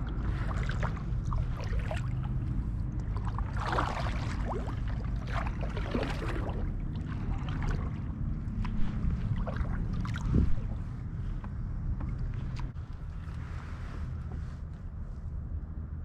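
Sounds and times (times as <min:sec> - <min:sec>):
paddle splashing water: 0:00.0 - 0:11.4
steady low rumble: 0:00.0 - 0:16.0.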